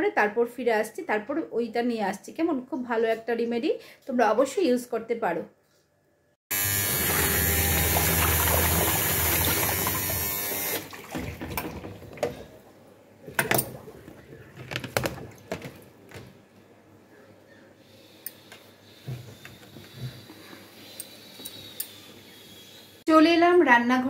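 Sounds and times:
washing machine running: 6.5s - 16.3s
clothes knocking in plastic tub: 11.0s - 12.6s, 13.3s - 16.4s.

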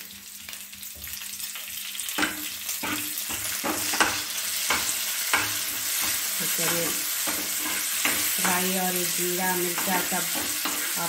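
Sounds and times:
hot oil sizzling: 0.0s - 11.0s
steel spoon scraping metal pan: 2.2s - 11.0s.

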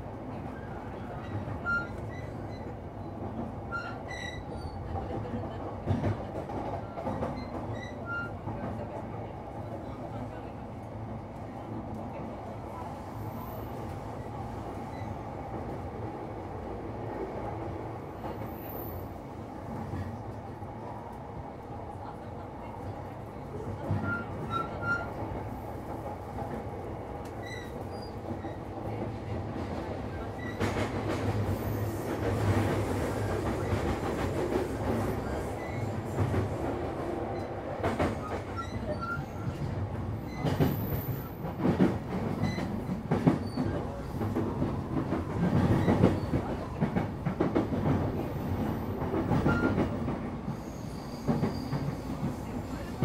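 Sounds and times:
train wheels rumbling: 22.0s - 53.0s.

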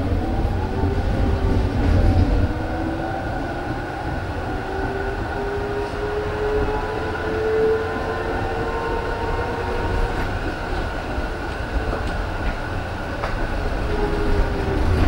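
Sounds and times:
tram wheels rumbling on track: 0.0s - 15.0s.

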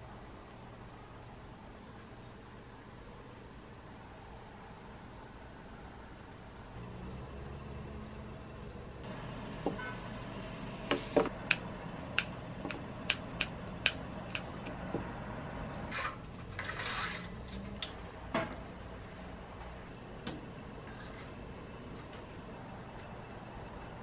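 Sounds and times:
low steady hum: 0.0s - 24.0s
scissors snipping stems: 11.2s - 14.8s.

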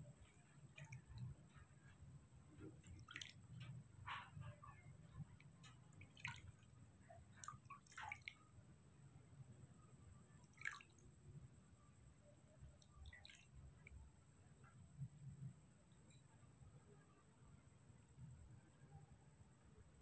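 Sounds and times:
water splashing in a plastic basin: 0.1s - 9.2s, 10.3s - 11.5s, 12.6s - 14.2s.

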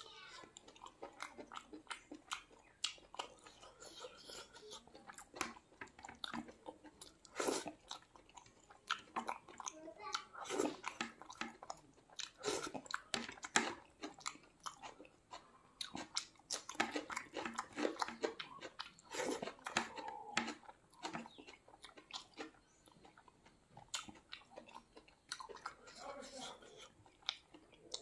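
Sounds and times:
food crunch: 0.2s - 28.0s
chewing and biting food: 0.3s - 28.0s.

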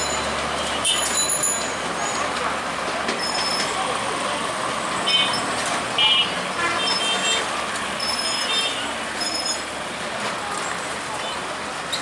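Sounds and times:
train wheels rumbling on rails: 0.0s - 12.0s
high-pitched wheel squeals: 3.2s - 3.8s, 8.0s - 9.7s.

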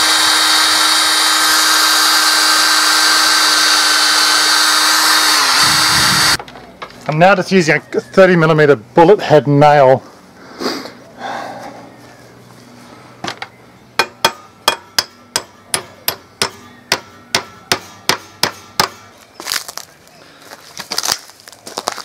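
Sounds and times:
hammer tapping a nail: 14.0s - 19.0s.

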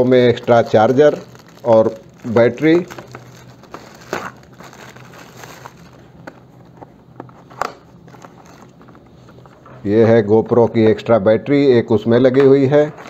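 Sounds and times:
plastic bag crinkling: 0.0s - 6.4s, 7.8s - 9.5s.

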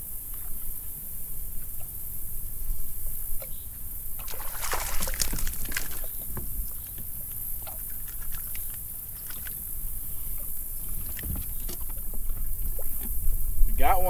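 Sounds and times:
fish splashing at surface: 4.2s - 6.2s
water slapping boat hull: 4.2s - 14.0s.

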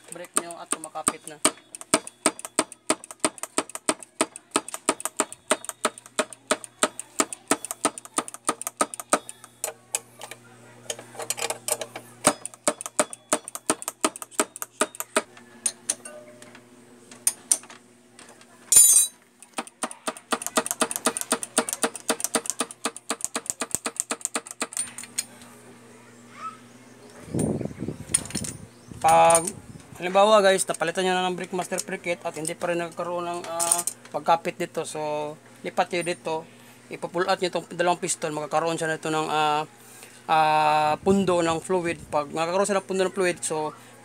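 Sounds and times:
rapid metallic clicking: 0.0s - 9.5s, 19.5s - 24.8s.

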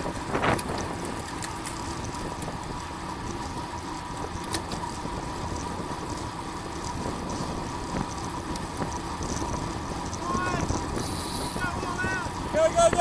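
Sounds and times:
bike tyre rumble: 0.0s - 13.0s
wind rush: 6.9s - 13.0s.

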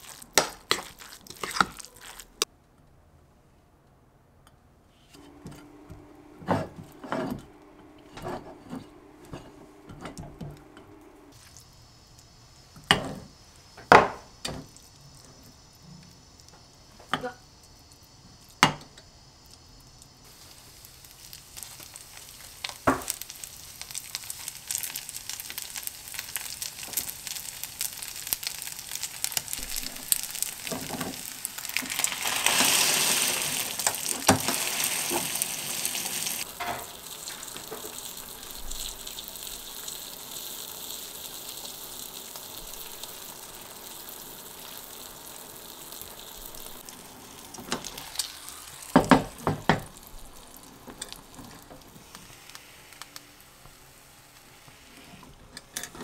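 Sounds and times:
rice mixture sizzling in pan: 0.0s - 2.5s, 5.2s - 55.8s.

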